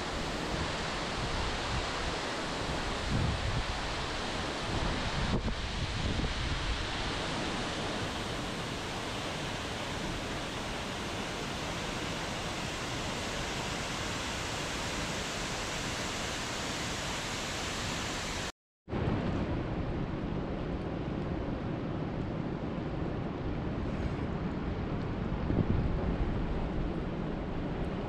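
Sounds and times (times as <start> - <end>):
water sound with less hiss: 0.0 - 18.5
waterfall rushing: 6.6 - 18.5.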